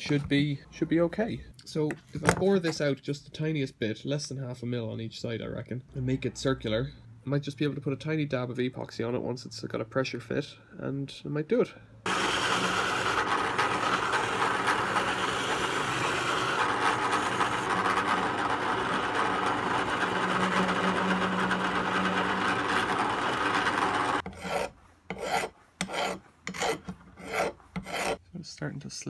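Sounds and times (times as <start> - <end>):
drill press motor hum: 12.1 - 24.2.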